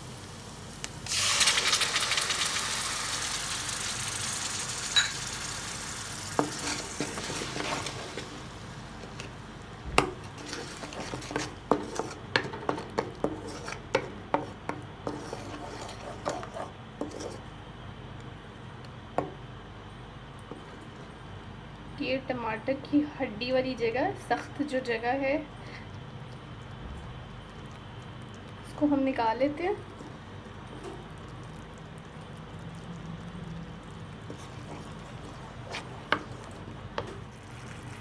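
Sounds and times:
sauce sizzling in hot oil: 0.0s - 17.5s, 26.4s - 38.0s
wooden spatula scraping a pan: 6.4s - 8.3s, 10.2s - 17.4s, 34.3s - 38.0s.

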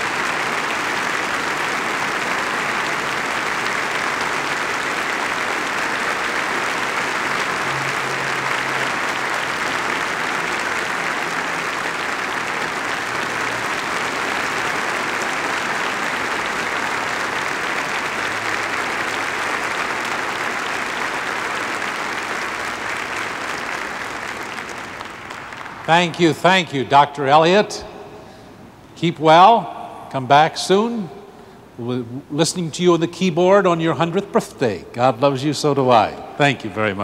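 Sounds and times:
audience applauding: 0.0s - 27.6s.

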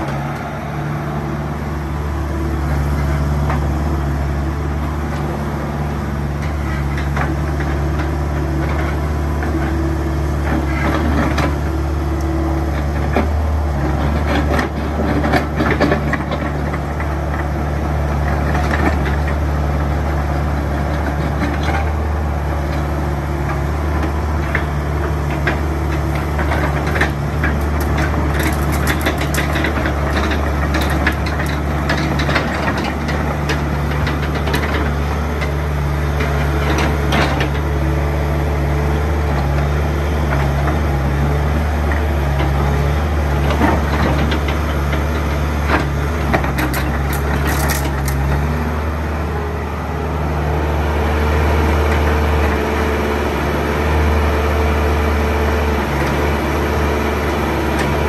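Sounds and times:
diesel engine running: 0.0s - 58.0s
excavator tracks and arm rattling: 0.0s - 58.0s.

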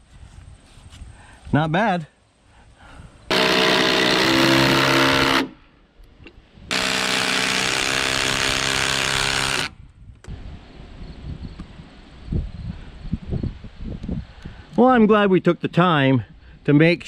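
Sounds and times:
impact driver hammering screws: 3.3s - 5.5s, 6.7s - 9.7s.

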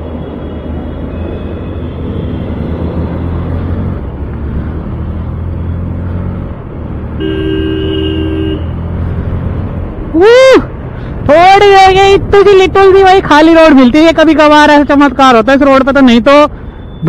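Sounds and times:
two-note vehicle horn: 7.2s - 8.7s.

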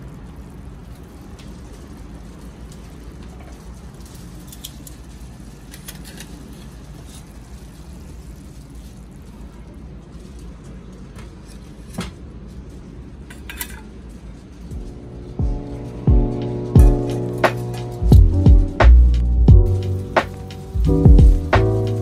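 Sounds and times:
food simmering in a pot: 0.0s - 16.0s
low stove rumble: 0.0s - 22.0s.

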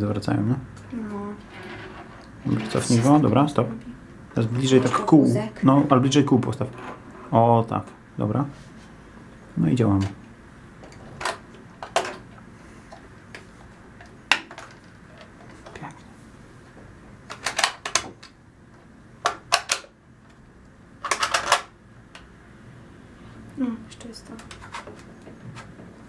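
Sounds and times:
plastic toy parts clicking: 21.0s - 21.7s.

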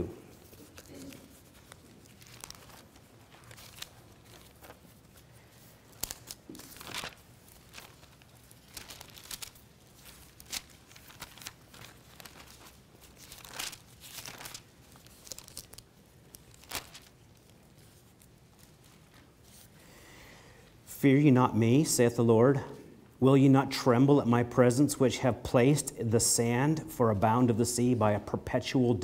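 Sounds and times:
pages rustling as turned: 0.3s - 19.8s.

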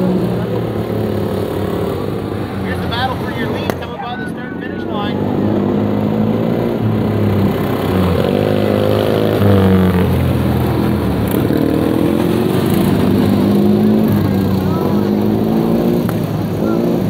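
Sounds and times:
racing lawn tractor engines: 0.0s - 17.0s.

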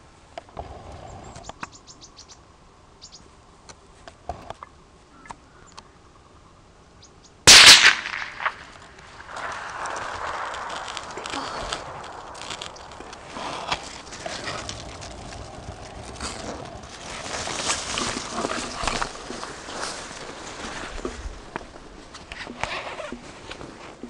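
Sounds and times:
rifle shot: 7.5s - 12.9s
rustling of shooter moving: 7.9s - 24.0s.

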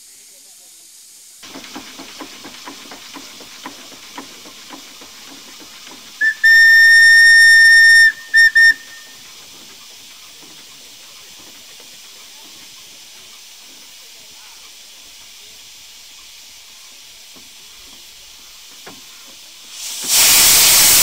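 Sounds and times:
steam hissing: 0.0s - 21.0s
steam locomotive whistle: 6.2s - 9.2s.

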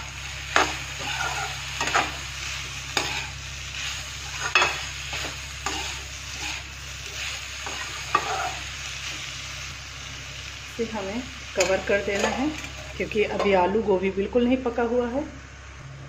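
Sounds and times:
vegetables sizzling: 0.0s - 15.8s
metal spatula scraping pan: 0.6s - 2.2s, 4.3s - 8.7s.

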